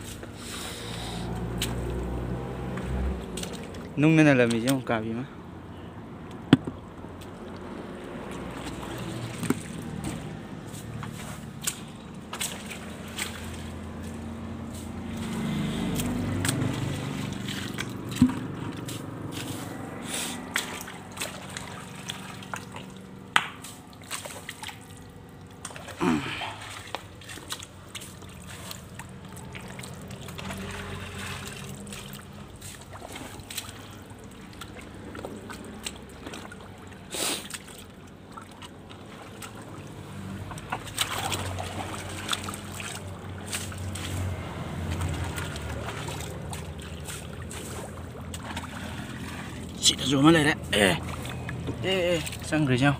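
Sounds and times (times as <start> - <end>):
hands scooping mud and water: 0.0 - 5.0, 6.3 - 52.9
water sloshing and trickling: 0.0 - 52.9
sharp splashes and knocks: 1.3 - 5.0, 6.4 - 52.9.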